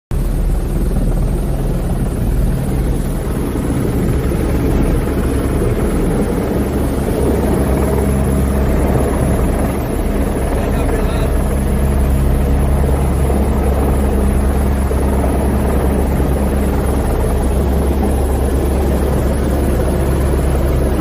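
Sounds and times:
helicopter rotor and engine: 0.1s - 21.0s.

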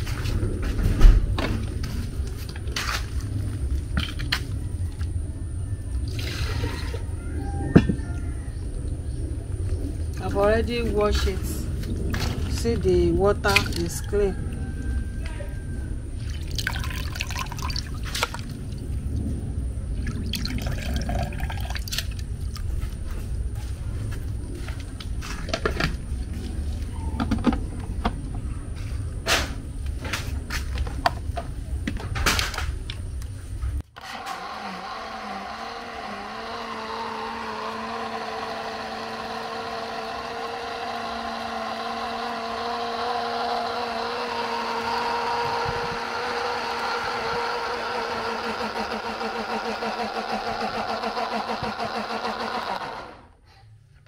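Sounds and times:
low rumble: 0.0s - 16.8s, 17.4s - 33.8s
electric grinder motor running: 34.0s - 53.3s.

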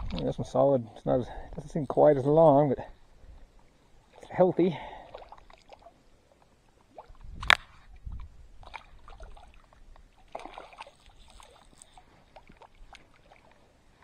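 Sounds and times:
water lapping at rocky shore: 1.5s - 14.0s
water splashing: 4.0s - 14.0s
small ticks: 10.9s - 13.1s.

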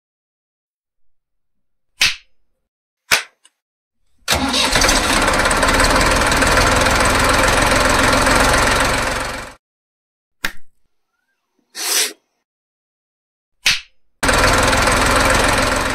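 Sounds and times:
engine running with low pulsing: 4.5s - 9.6s, 14.2s - 15.9s.

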